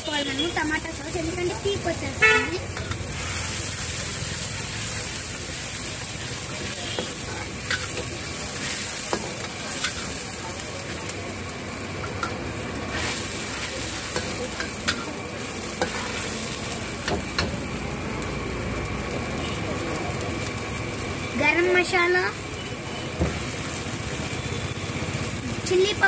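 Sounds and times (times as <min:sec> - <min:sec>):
sauce sizzling and bubbling: 0:00.0 - 0:26.0
metal ladle scraping a wok: 0:15.7 - 0:16.4.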